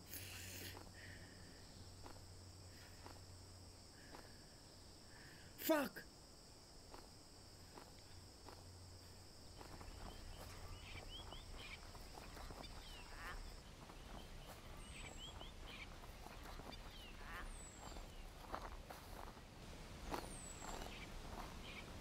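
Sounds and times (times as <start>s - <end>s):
high insect buzz: 0.0s - 19.3s
footsteps rustling through grass: 0.1s - 5.0s, 6.4s - 22.0s.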